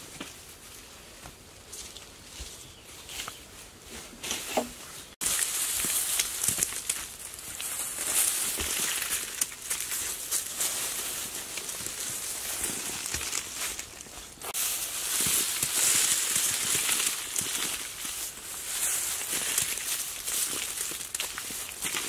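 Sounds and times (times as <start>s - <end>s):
dry soil rustling over grass: 0.0s - 22.0s.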